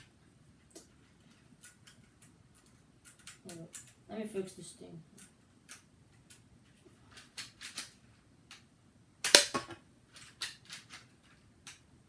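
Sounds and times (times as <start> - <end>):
loud sharp plastic snap: 9.2 - 9.8.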